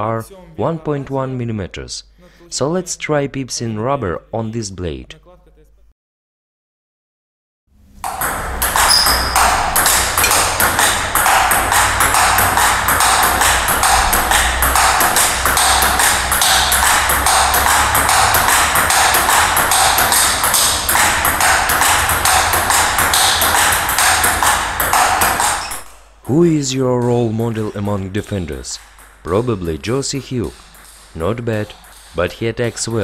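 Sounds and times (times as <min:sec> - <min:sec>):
ping pong ball bouncing on table: 0:08.0 - 0:33.0
ping pong ball striking bats: 0:08.0 - 0:33.0.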